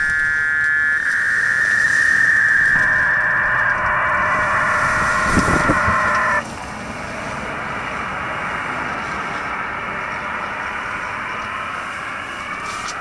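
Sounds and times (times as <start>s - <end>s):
warbling two-tone data burst: 0.0s - 6.4s
radio band noise hissing: 0.0s - 6.5s.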